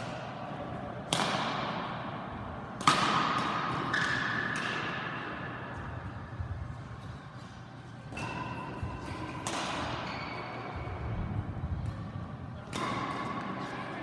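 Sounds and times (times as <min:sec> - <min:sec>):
racket striking shuttlecock: 0:01.1 - 0:06.0, 0:08.0 - 0:10.6, 0:11.8 - 0:14.0.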